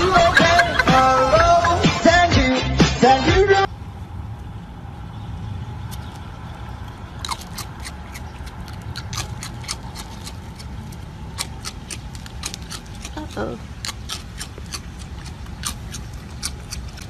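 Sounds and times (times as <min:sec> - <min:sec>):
low rumble: 0:00.0 - 0:17.0
dry cereal crunching: 0:07.2 - 0:17.0.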